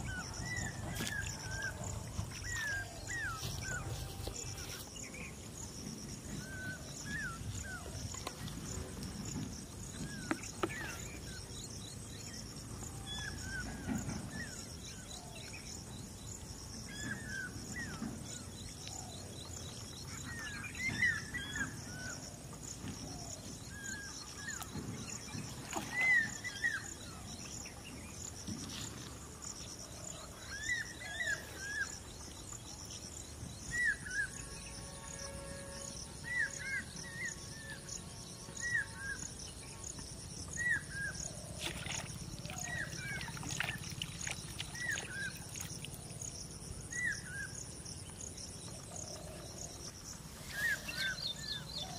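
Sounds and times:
steady high outdoor buzz: 0.0 - 51.9.

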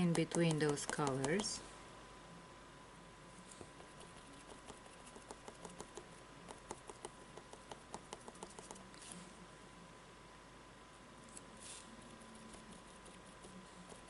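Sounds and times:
sponge dauber tapping cardboard: 0.0 - 1.5, 3.6 - 8.8.

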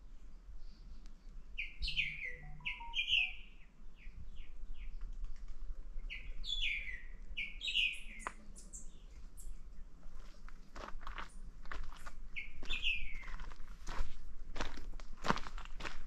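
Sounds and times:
songbird chirping: 0.9 - 5.2, 6.0 - 10.3, 12.3 - 13.6.

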